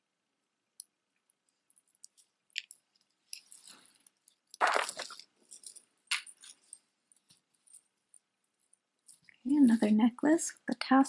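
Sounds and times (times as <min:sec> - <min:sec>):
beads and chain rattling: 0:02.8 - 0:09.4.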